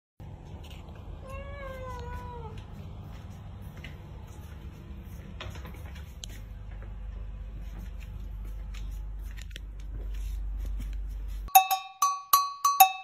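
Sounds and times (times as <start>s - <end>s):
cat meowing: 1.2s - 2.6s.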